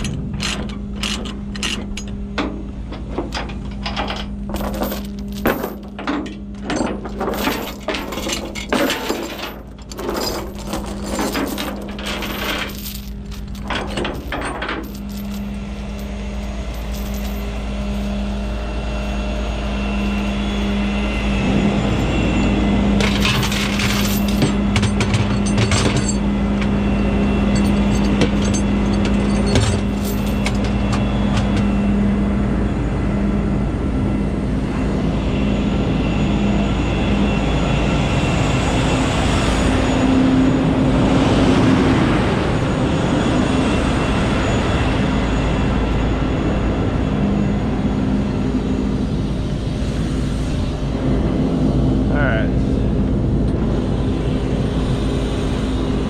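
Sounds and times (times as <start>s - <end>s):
metallic clanking and rattling: 0.0s - 16.1s, 23.0s - 26.8s, 27.5s - 31.7s.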